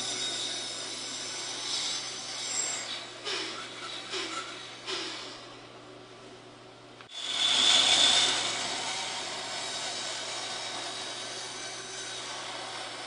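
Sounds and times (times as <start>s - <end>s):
bandsaw cutting wood: 0.0s - 5.3s, 7.1s - 13.0s.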